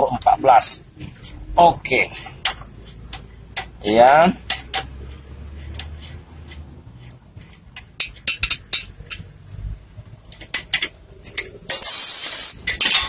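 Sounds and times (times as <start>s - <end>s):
spanner clinking on metal bolt: 10.3s - 13.0s.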